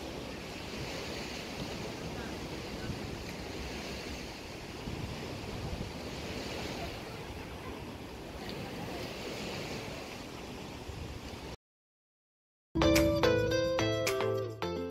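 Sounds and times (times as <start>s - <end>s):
river water: 0.0s - 11.6s
wind rushing over microphone: 0.0s - 11.6s.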